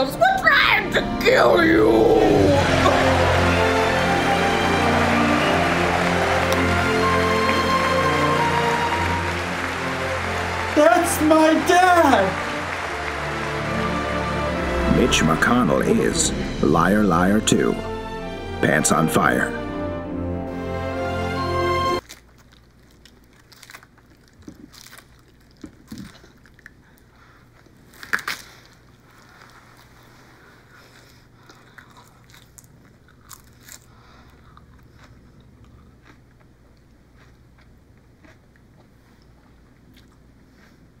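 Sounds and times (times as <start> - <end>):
person chewing crisp lettuce: 22.0 - 41.0.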